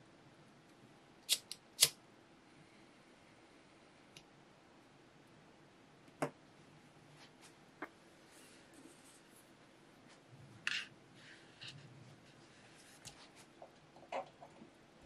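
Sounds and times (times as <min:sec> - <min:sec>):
soft rustling: 0:07.1 - 0:10.3, 0:11.1 - 0:13.6.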